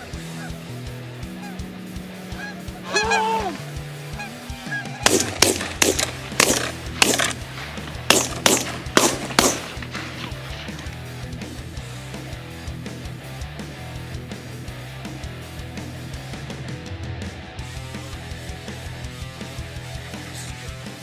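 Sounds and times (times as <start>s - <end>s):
geese honking: 0.0s - 11.6s
background music with bass line: 0.0s - 21.0s.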